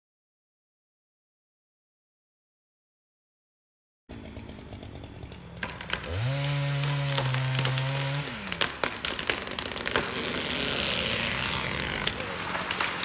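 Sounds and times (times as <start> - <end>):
chainsaw revving: 4.1 - 13.0
wood cracking: 4.1 - 13.0.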